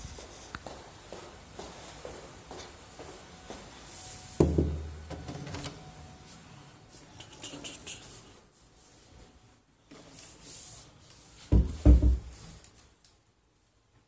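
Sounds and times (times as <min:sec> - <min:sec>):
footsteps: 0:00.0 - 0:04.4.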